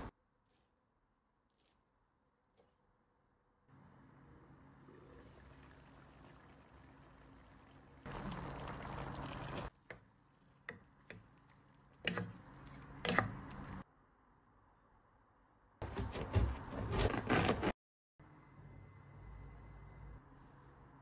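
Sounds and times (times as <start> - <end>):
wet squelching stirring: 1.4 - 1.9, 5.2 - 13.8
stew simmering and bubbling: 3.7 - 13.9.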